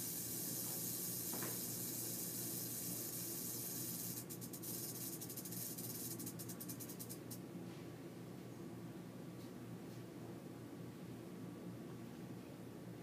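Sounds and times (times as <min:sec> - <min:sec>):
rattlesnake rattle buzzing: 0:00.0 - 0:07.4.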